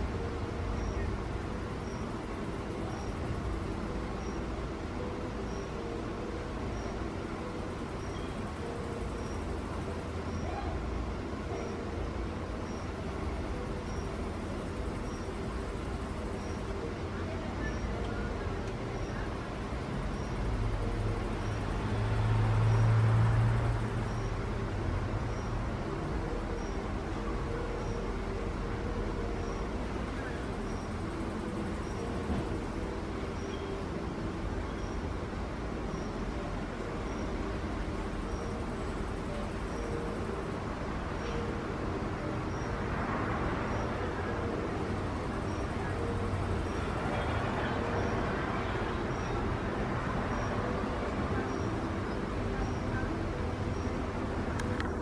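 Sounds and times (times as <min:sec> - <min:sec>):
outdoor background rumble: 0:00.0 - 0:55.0
vehicle passing hum: 0:00.0 - 0:55.0
faint high chirp: 0:27.5 - 0:33.9.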